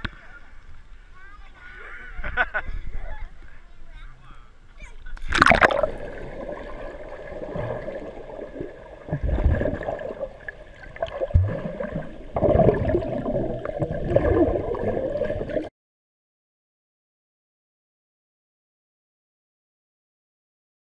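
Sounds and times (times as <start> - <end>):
loud splash into pool: 5.2 - 8.2
muffled underwater gurgling: 5.3 - 15.7.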